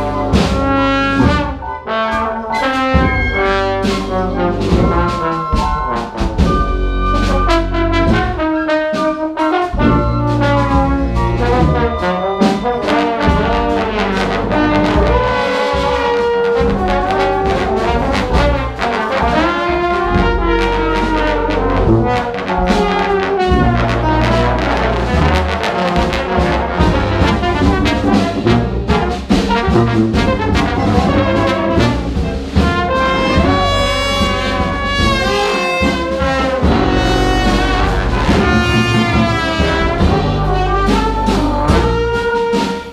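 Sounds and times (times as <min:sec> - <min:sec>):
big band playing: 0:00.0 - 0:42.9
drum kit: 0:00.0 - 0:42.9
flute line: 0:02.6 - 0:07.8, 0:10.0 - 0:13.6, 0:33.2 - 0:41.4.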